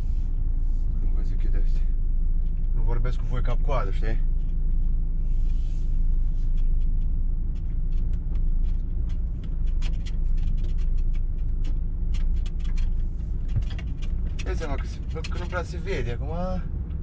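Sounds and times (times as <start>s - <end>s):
diesel truck engine rumbling: 0.0s - 17.0s
clicks and rattles: 6.7s - 15.7s.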